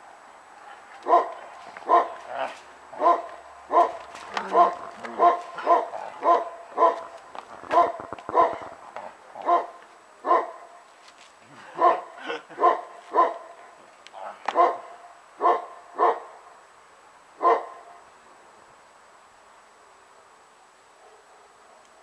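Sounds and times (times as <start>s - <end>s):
large dog barking: 0.6s - 10.8s, 11.6s - 16.5s, 17.4s - 18.0s.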